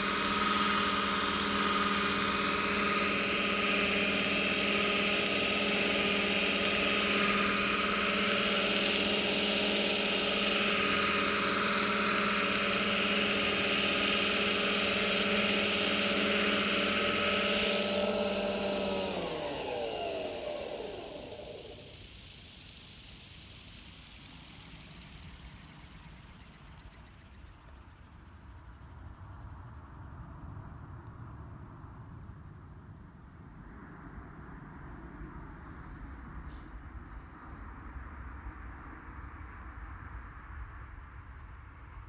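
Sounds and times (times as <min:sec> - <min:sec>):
model helicopter rotor whine: 0:00.0 - 0:30.8.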